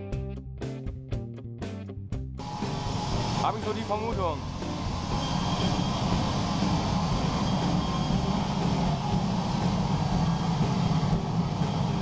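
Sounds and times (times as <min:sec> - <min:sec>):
gas burner roaring: 0:02.4 - 0:12.0.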